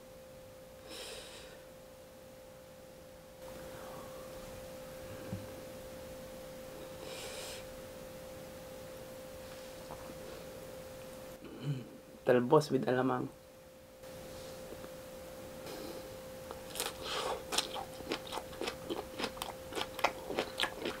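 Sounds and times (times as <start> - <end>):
steady faint tone: 0.1 - 16.6.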